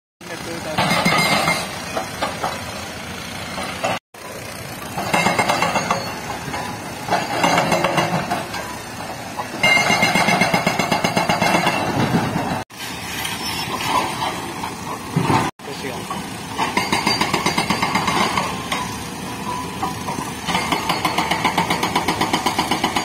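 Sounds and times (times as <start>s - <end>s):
diesel engine running: 0.2s - 23.0s
hydraulic rock breaker hammering: 0.5s - 2.8s, 3.6s - 8.8s, 9.4s - 12.6s, 16.1s - 23.0s.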